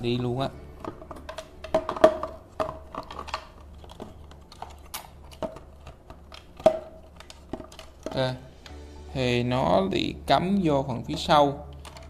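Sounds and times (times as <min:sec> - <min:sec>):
plastic parts clicking: 0:00.8 - 0:08.7, 0:11.6 - 0:12.0.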